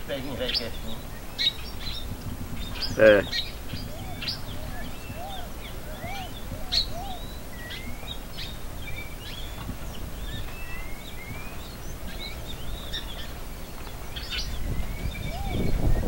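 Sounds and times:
small birds chirping and calling: 0.0 - 16.0
steady low rumble: 0.0 - 16.0.

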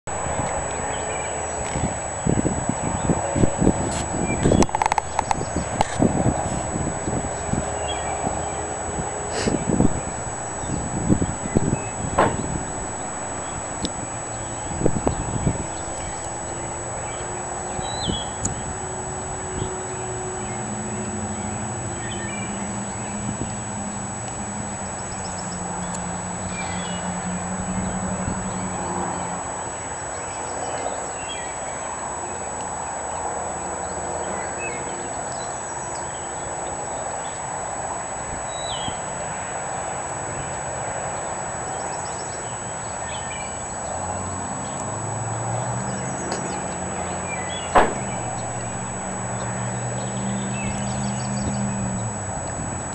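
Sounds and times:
outdoor rush: 0.1 - 18.4, 43.9 - 52.9
birds chirping: 0.1 - 23.2, 45.6 - 52.9.

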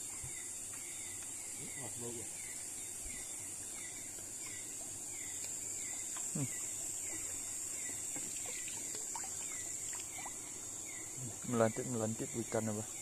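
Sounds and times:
insect chorus: 0.0 - 13.0
light water splashes: 3.6 - 13.0.

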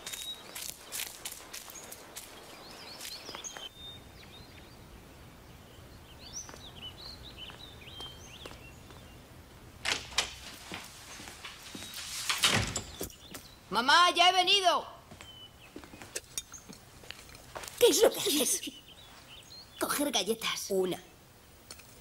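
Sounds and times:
child's running footsteps: 0.0 - 3.7, 7.4 - 9.1, 9.9 - 12.0
birds chirping: 0.0 - 22.0.

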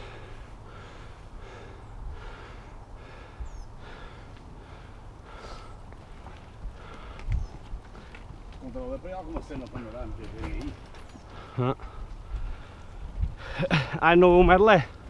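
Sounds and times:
person breathing hard: 0.0 - 8.1, 11.3 - 13.7.

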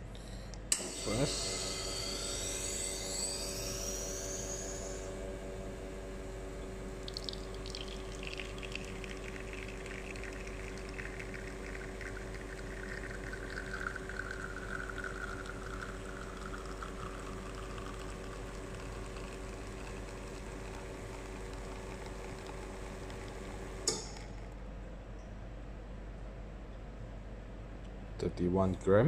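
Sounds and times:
espresso machine pump hum: 0.8 - 24.5
espresso trickling into cup: 7.0 - 23.8.

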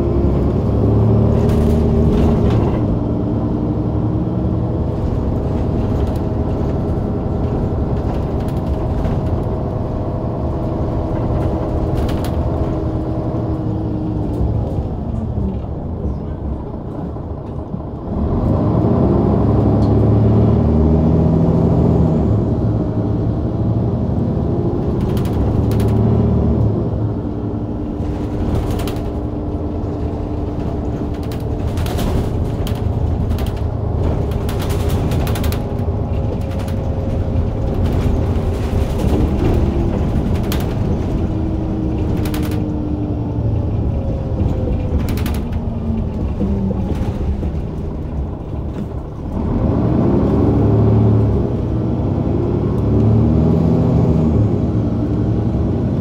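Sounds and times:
bus body rattling and clicking: 0.0 - 56.0
bus engine running: 0.0 - 56.0.

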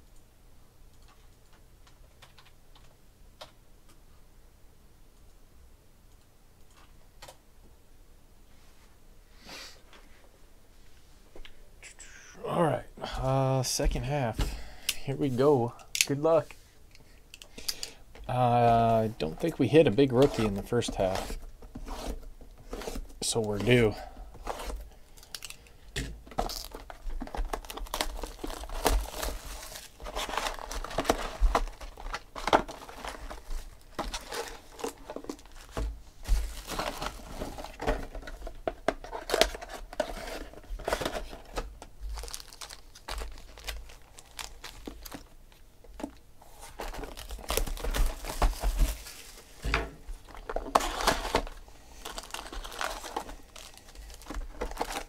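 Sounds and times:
foil wrappers crinkling and tearing: 17.6 - 21.4, 22.7 - 45.3, 46.4 - 49.5, 50.3 - 55.0.

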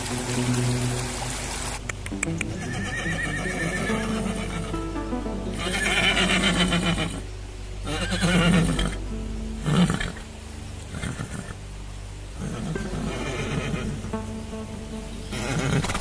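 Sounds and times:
background music: 0.0 - 16.0
horse whinnying: 2.6 - 4.7, 5.6 - 7.2, 7.9 - 9.0, 12.4 - 14.0.

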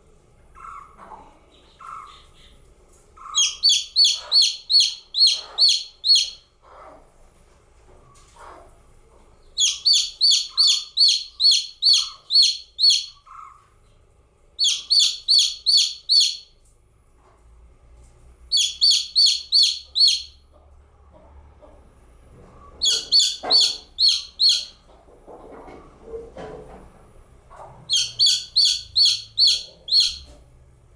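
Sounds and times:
chick peeping: 0.5 - 7.1, 9.4 - 13.7, 14.6 - 16.6, 18.5 - 21.7, 22.5 - 25.1, 27.5 - 30.5.

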